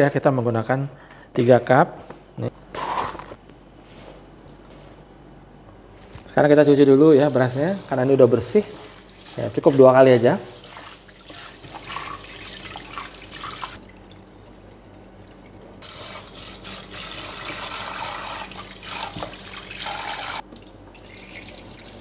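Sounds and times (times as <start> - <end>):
water poured into sink: 10.5 - 14.2, 15.2 - 22.0
tap water running into bowl: 10.6 - 22.0.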